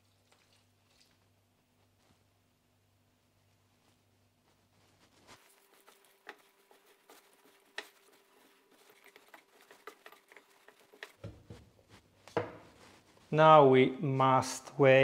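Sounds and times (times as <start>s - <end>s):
dough squishing: 3.4s - 13.5s.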